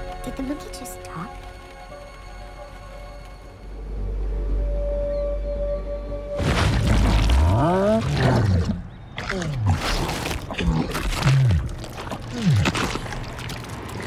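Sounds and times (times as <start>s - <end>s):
crashing and splashing: 6.4s - 8.4s, 9.2s - 14.0s.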